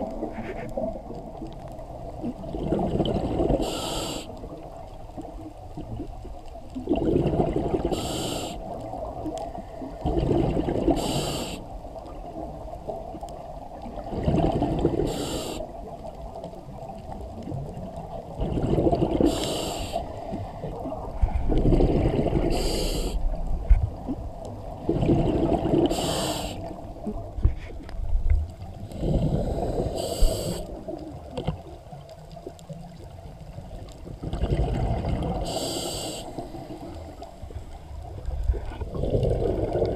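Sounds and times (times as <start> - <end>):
gurgle of exhaled bubbles: 0.0 - 16.0, 16.6 - 27.5, 28.3 - 39.9
regulator inhale hiss: 3.6 - 4.5, 7.9 - 8.8, 10.9 - 11.7, 15.0 - 15.8, 19.2 - 21.5, 22.4 - 23.4, 25.9 - 26.8, 28.8 - 30.8, 35.4 - 37.6.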